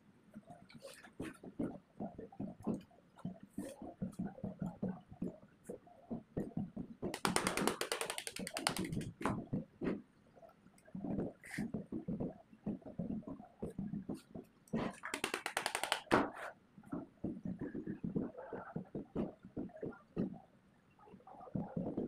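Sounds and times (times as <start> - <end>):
tape rubbing through windings: 7.1 - 9.2, 15.0 - 16.2.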